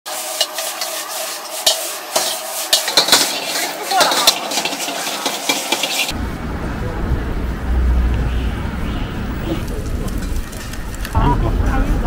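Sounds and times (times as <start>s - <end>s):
food sizzling in a wok: 0.1s - 6.2s
metal ladle scraping a wok: 0.1s - 6.2s.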